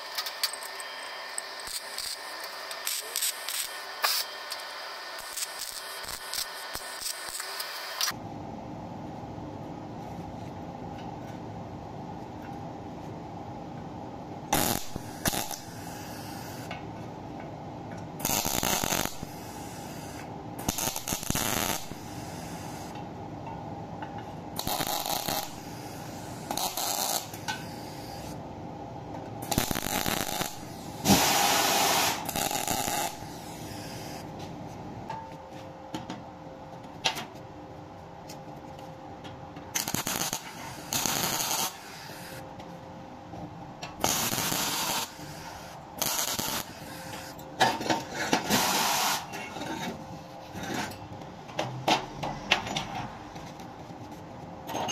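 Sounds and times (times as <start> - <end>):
welder tack welds: 0.0 - 8.2, 14.5 - 16.8, 18.2 - 23.0, 24.6 - 28.4, 29.4 - 34.3, 39.7 - 42.4, 44.0 - 49.4.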